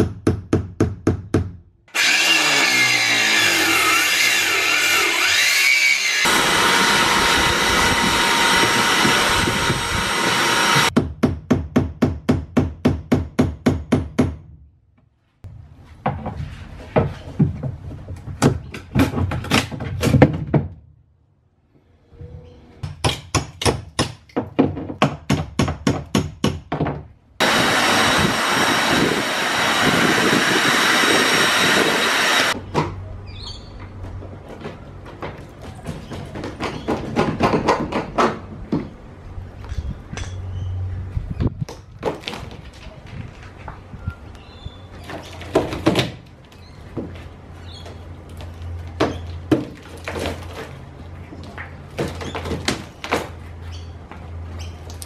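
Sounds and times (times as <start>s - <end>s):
shop vacuum running: 1.9s - 3.9s, 4.7s - 10.9s, 27.4s - 32.6s.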